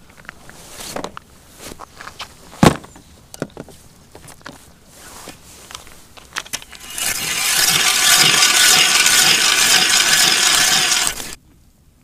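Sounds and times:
ice auger grinding through ice: 0:06.6 - 0:11.4.

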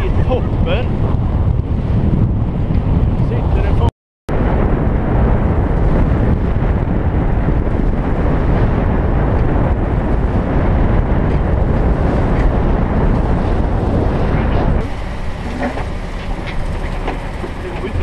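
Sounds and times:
wind rumble on microphone: 0:00.0 - 0:18.0
water rushing past hull: 0:04.3 - 0:18.0.

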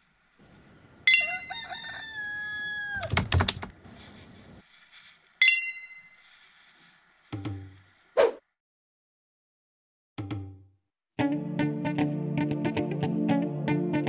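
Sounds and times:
rooster crowing: 0:01.0 - 0:03.3
sharp ringing tone: 0:05.4 - 0:06.2.

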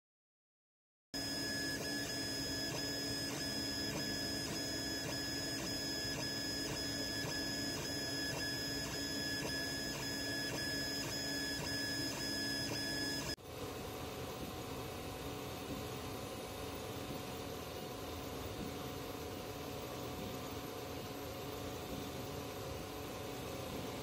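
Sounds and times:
stepper motors whining: 0:01.2 - 0:13.4.

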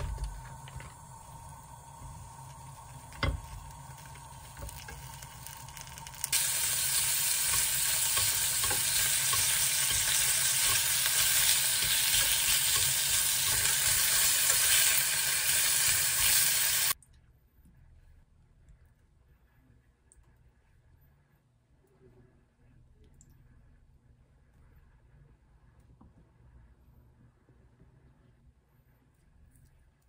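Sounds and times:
meat sizzling in a pan: 0:01.2 - 0:17.0.

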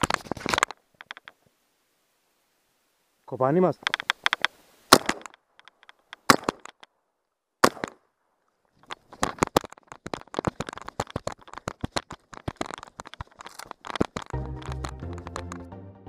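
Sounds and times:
shotgun shots: 0:04.9 - 0:05.3, 0:06.2 - 0:06.7, 0:07.6 - 0:08.0.

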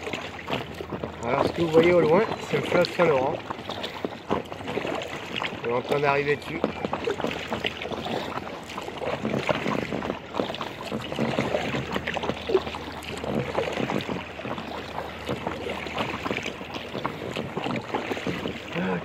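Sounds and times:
water lapping against kayak hull: 0:00.0 - 0:19.0.

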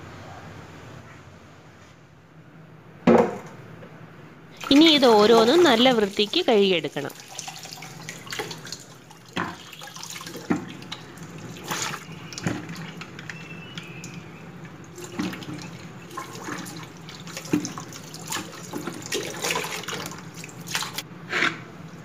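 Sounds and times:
water splashing: 0:04.6 - 0:21.0.

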